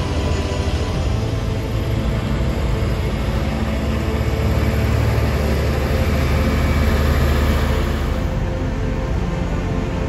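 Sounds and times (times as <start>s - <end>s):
truck diesel engine rumbling: 0.0s - 10.0s.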